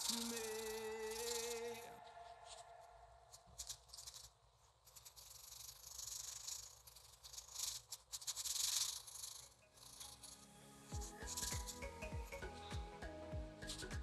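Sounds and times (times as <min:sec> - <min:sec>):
pencil scratching on paper: 0:00.0 - 0:02.7, 0:03.3 - 0:10.5, 0:11.1 - 0:12.0
background music: 0:09.7 - 0:14.0.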